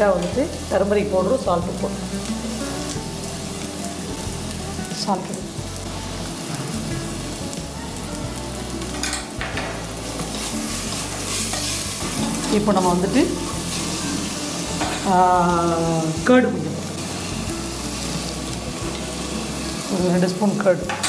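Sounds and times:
food sizzling in oil: 0:00.0 - 0:21.0
spatula scraping and clinking: 0:10.3 - 0:12.6.

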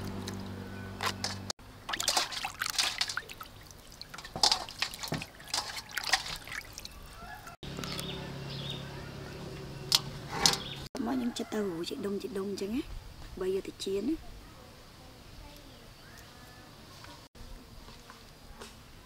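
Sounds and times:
water splashing in a metal bowl: 0:00.0 - 0:07.6.

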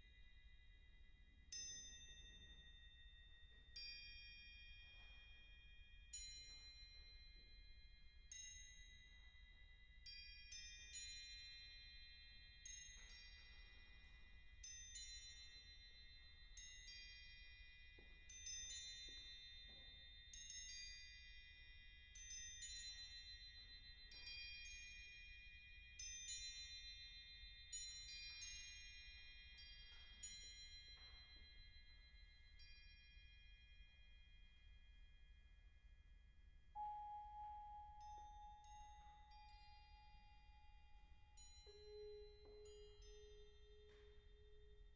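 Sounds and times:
crotales bell tones: 0:36.8 - 0:44.9.

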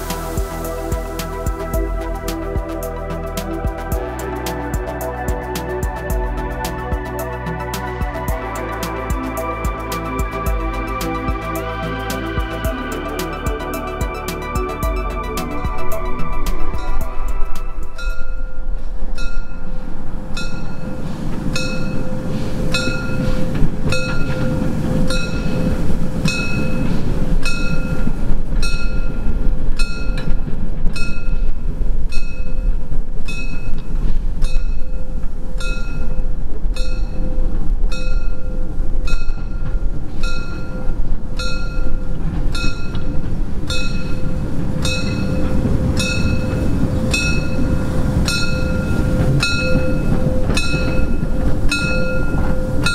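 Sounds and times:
rumble of train wheels: 0:00.0 - 0:52.9
locomotive warning bell: 0:07.2 - 0:19.8, 0:20.4 - 0:31.5, 0:34.4 - 0:52.9.

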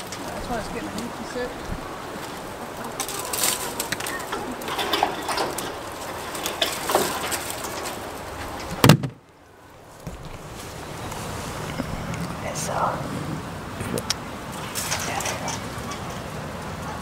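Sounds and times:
branches cracking and rustling: 0:00.0 - 0:12.8, 0:13.4 - 0:17.0
loud sharp knock: 0:08.8 - 0:09.2.

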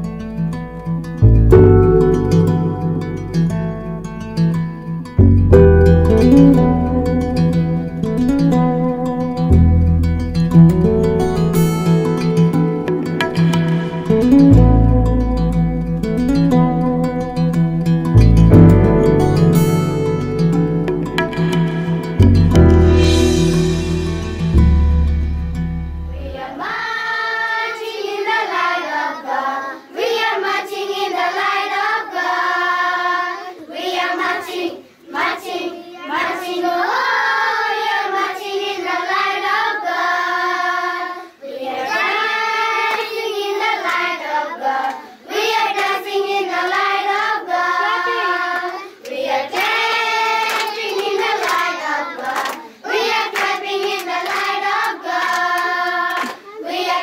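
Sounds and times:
children singing in unison: 0:26.2 - 0:57.0.

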